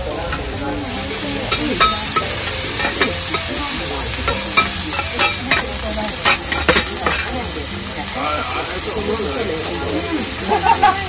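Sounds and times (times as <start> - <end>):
vegetables sizzling on a griddle: 0.0 - 11.0
metal spatulas clinking on griddle: 1.4 - 7.6.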